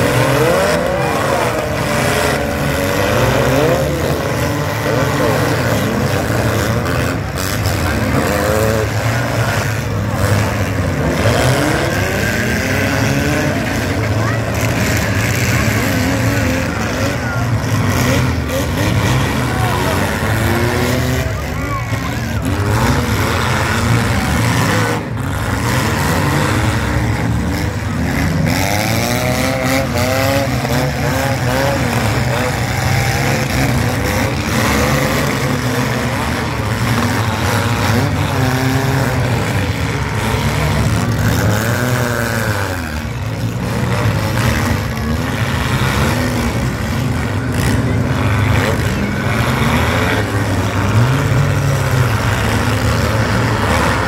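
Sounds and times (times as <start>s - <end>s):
car engines revving: 0.0s - 54.0s
cars crashing: 0.0s - 54.0s.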